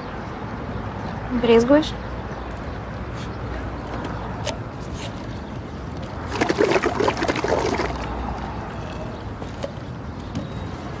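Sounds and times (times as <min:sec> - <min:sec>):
drink slurped through a straw: 0:06.2 - 0:08.2.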